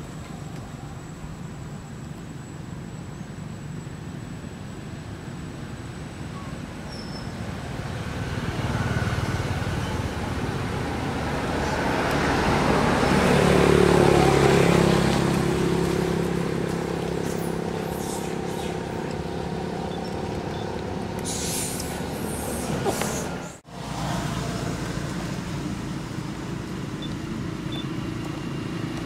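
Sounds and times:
steady engine hum: 0.0s - 29.0s
motor vehicle passing: 7.5s - 29.0s.

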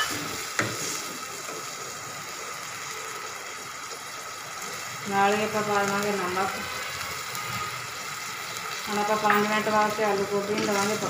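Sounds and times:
water and oil sizzling in a pan: 0.0s - 11.0s.

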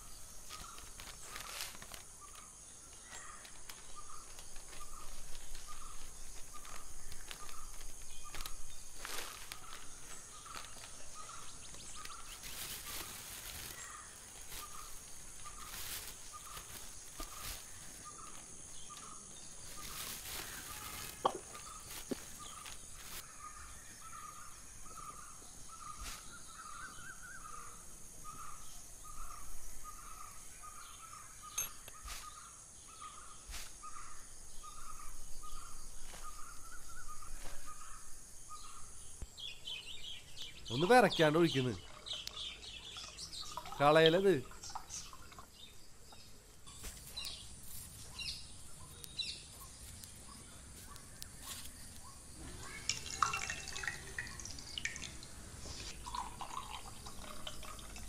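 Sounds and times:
high insect hum: 0.0s - 58.0s
newspaper rustling: 0.2s - 23.3s.

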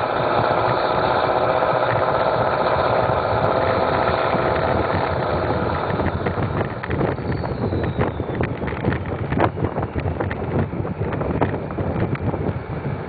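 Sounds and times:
diesel truck engine running: 0.0s - 13.0s
wind buffeting microphone: 0.0s - 13.0s.

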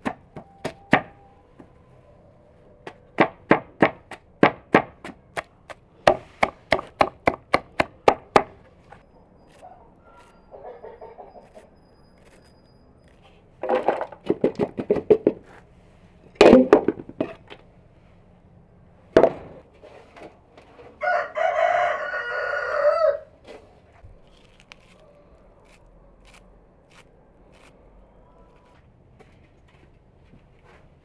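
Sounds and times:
chickens clucking: 9.7s - 11.8s
rooster crowing: 21.0s - 23.4s.

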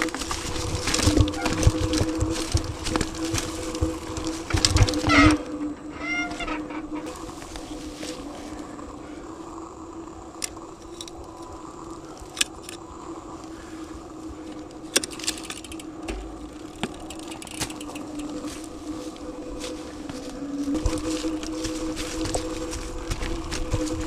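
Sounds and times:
mountain bike rattling: 0.0s - 9.2s, 10.3s - 24.0s
steady hum: 0.0s - 24.0s
sharp metallic clicks: 14.9s - 18.4s.

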